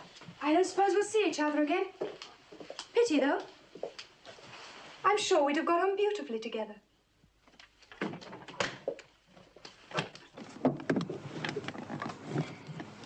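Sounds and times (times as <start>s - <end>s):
clicks knocks and rustling: 7.5s - 13.0s.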